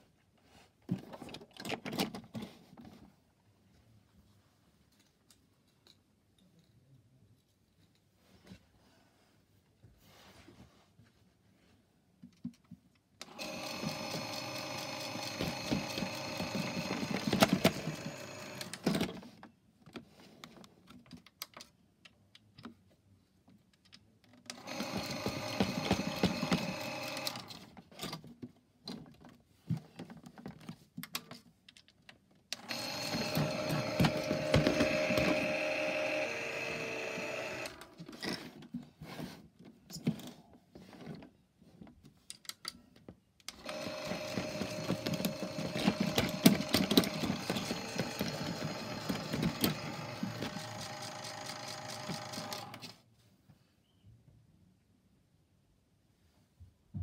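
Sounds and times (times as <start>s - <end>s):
washing machine drum motor whining: 13.3s - 18.8s, 32.6s - 37.8s, 43.6s - 52.8s.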